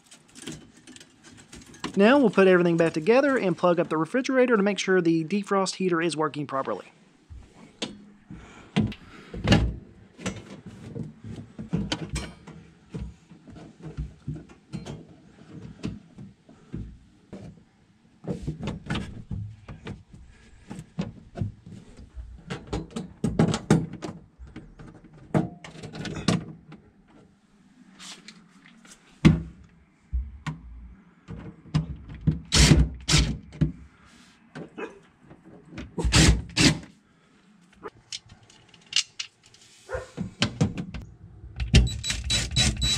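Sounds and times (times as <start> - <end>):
plastic panels knocking and clattering: 20.7 - 26.8.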